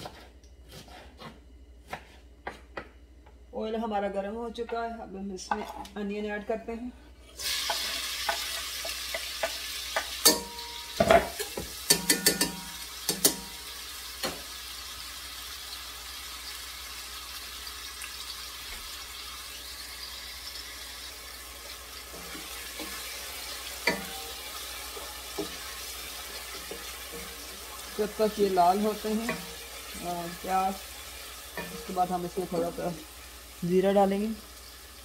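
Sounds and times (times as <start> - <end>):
onion sizzling in hot oil: 7.3 - 35.0.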